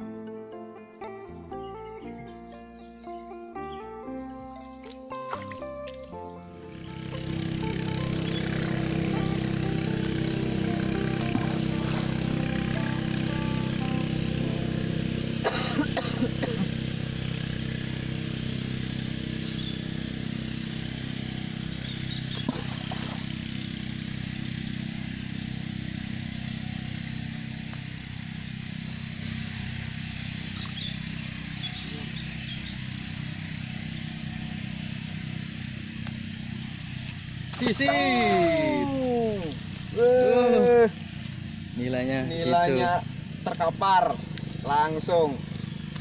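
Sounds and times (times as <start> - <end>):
outdoor background noise: 0.0 - 46.0
low engine drone: 1.3 - 46.0.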